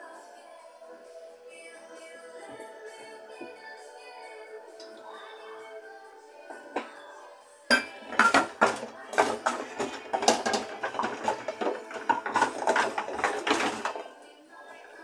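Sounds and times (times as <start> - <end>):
dishes and cutlery clattering: 7.7 - 14.2.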